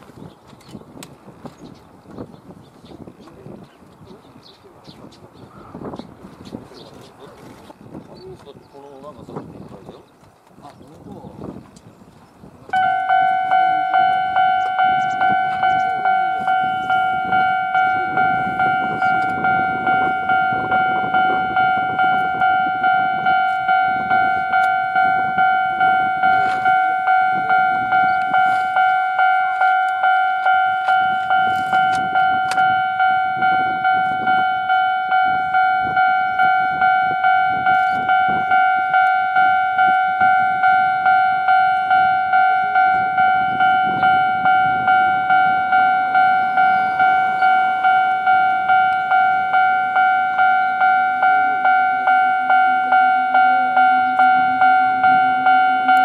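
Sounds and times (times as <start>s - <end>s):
level crossing bell ringing: 12.7s - 56.0s.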